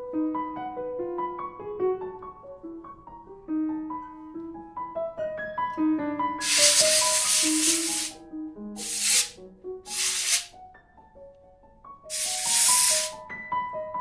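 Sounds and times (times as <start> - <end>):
compressed air blow gun hissing: 6.4 - 8.2, 8.8 - 10.5, 12.1 - 13.2.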